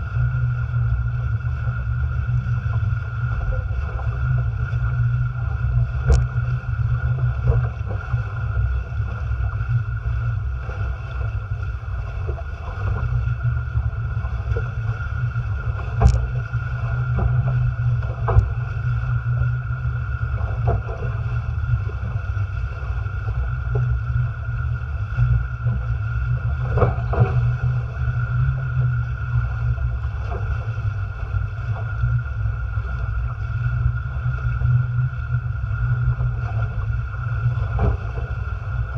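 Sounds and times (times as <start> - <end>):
water rushing past hulls: 0.0 - 38.9
wind rumble on microphone: 0.0 - 38.9.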